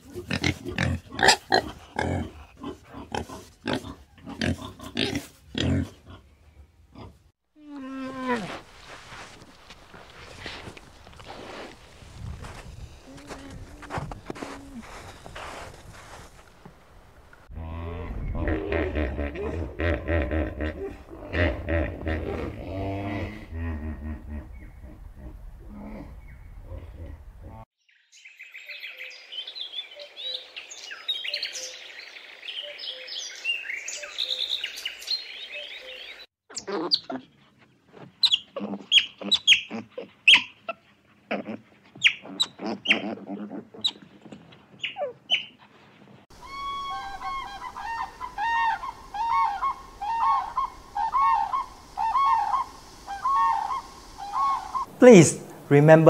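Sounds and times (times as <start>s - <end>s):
otters chirping and squeaking: 38.1s - 40.8s, 42.0s - 43.2s, 43.8s - 45.6s
guineafowl chattering: 46.4s - 55.0s.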